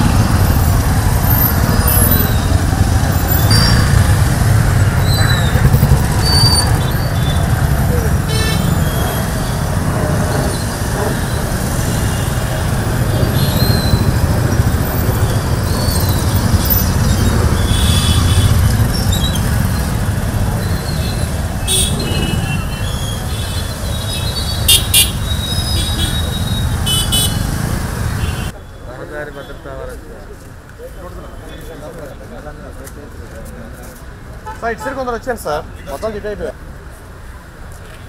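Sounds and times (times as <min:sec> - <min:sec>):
motorcycles riding past: 0:00.0 - 0:28.5.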